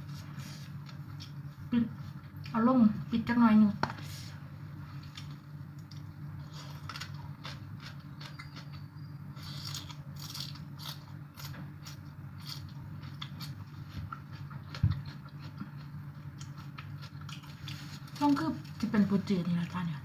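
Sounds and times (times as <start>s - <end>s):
steady low hum: 0.0s - 20.0s
crunchy chewing: 4.9s - 18.9s.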